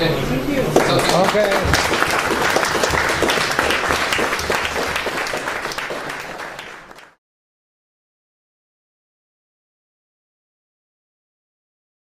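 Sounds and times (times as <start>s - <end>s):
audience applauding: 0.7s - 7.2s.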